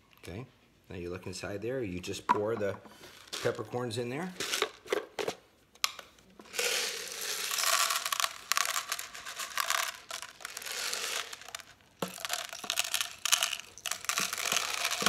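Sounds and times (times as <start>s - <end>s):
peppercorns pouring and rattling: 3.1s - 4.8s, 6.4s - 15.0s.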